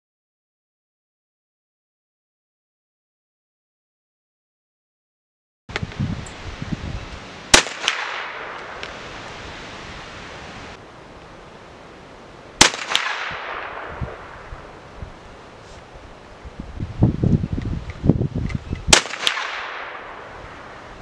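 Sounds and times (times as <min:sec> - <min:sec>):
wind rumbling on microphone: 0:05.7 - 0:21.0
rifle shots with echo: 0:07.5 - 0:08.9, 0:12.6 - 0:14.7, 0:18.9 - 0:20.8.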